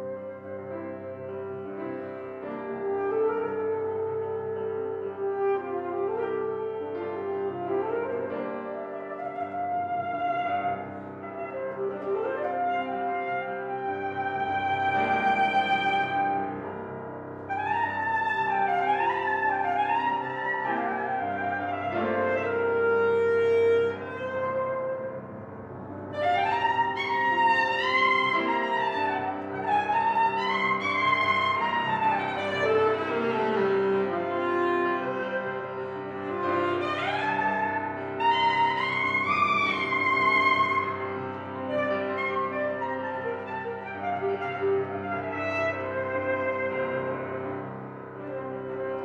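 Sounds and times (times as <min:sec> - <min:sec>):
alto saxophone melody: 0:00.0 - 0:49.0
piano accompaniment: 0:00.0 - 0:49.0.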